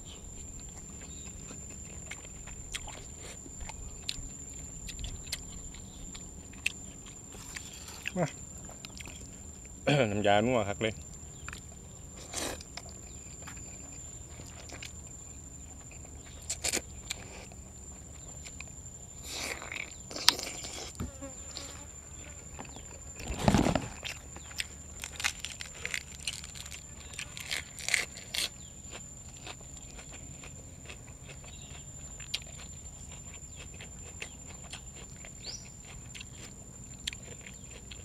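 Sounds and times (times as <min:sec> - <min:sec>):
person chewing food: 0:00.0 - 0:09.8, 0:11.0 - 0:21.8, 0:22.6 - 0:38.0
crunchy chewing bursts: 0:00.0 - 0:38.0.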